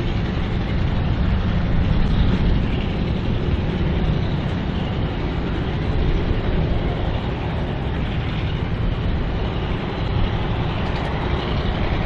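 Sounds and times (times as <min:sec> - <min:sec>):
diesel locomotive running: 0:00.0 - 0:12.0
rail noise: 0:00.0 - 0:12.0.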